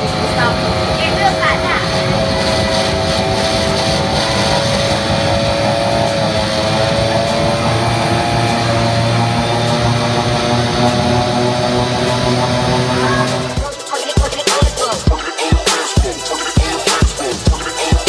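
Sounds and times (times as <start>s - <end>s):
held tones sagging in pitch: 0.0s - 13.8s
deep hum: 0.0s - 14.3s
engine-like drone: 0.0s - 18.0s.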